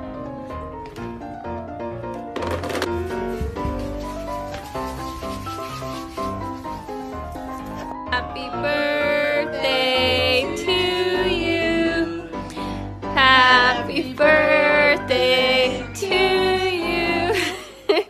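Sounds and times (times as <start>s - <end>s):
person singing: 8.0s - 17.8s.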